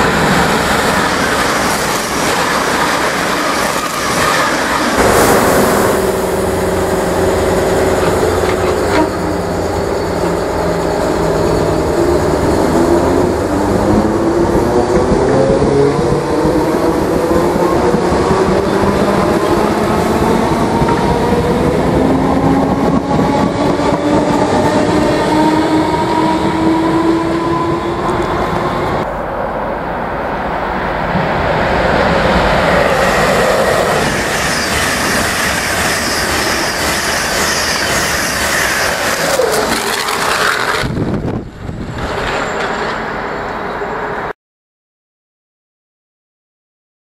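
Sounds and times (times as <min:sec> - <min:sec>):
express train passing at speed: 0:00.0 - 0:44.4
train traction motors whining: 0:00.3 - 0:15.2, 0:33.0 - 0:43.1.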